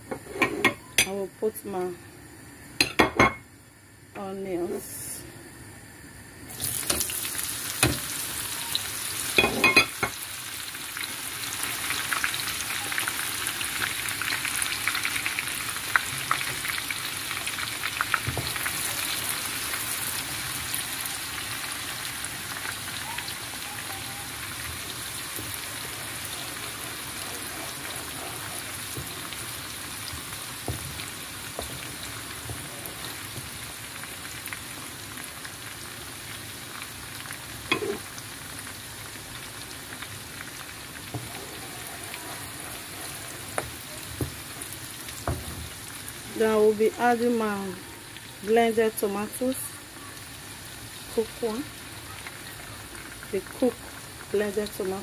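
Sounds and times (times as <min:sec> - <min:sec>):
onions sizzling in hot oil: 0:00.0 - 0:55.0
wooden spoon stirring: 0:24.6 - 0:33.7, 0:41.1 - 0:45.8.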